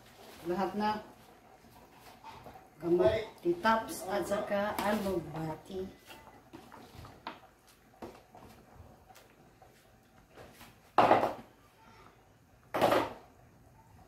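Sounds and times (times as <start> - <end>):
loud clunks on tiled counter: 11.0 - 11.5, 12.7 - 13.2.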